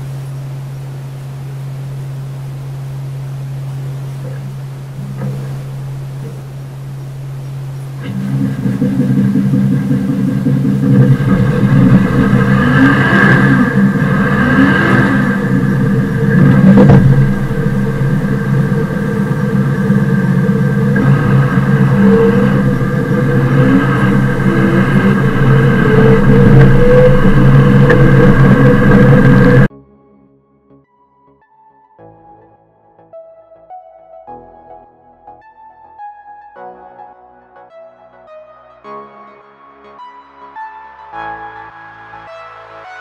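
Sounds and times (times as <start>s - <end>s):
tractor diesel engine running: 0.0s - 29.7s
wandering whine: 0.0s - 29.7s.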